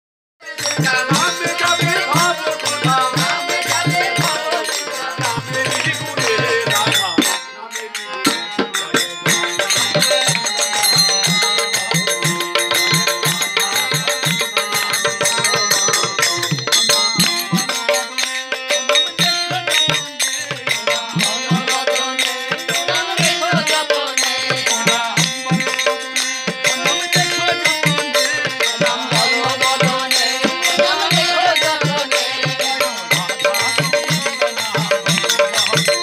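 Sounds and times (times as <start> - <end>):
harmonium: 0.4 - 36.0
drum beating: 0.7 - 7.4, 8.1 - 20.2.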